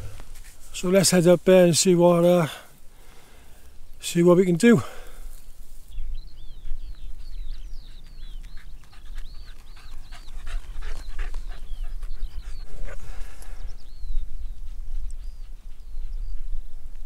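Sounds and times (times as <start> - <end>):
dog panting: 7.5 - 13.3
wind on microphone: 10.4 - 17.0.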